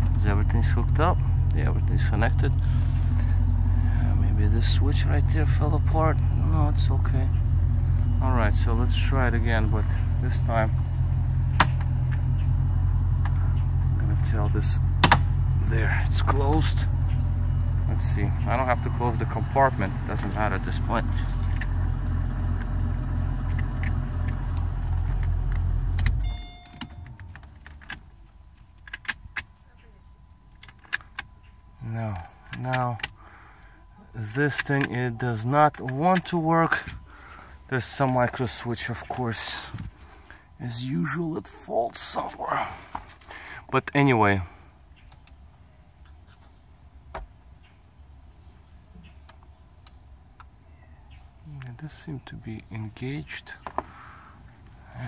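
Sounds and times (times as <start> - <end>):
short electronic beep: 26.2 - 27.2.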